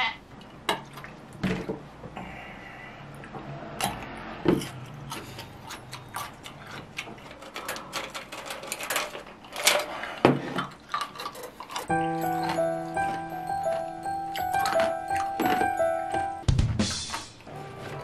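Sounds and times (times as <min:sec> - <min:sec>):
background music: 0:11.9 - 0:18.0.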